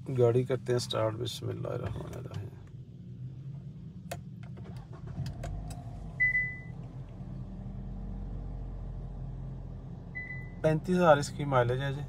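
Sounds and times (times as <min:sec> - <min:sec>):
car engine starting and idling: 0:00.0 - 0:12.0
dashboard warning beep: 0:06.2 - 0:06.7, 0:10.2 - 0:10.6.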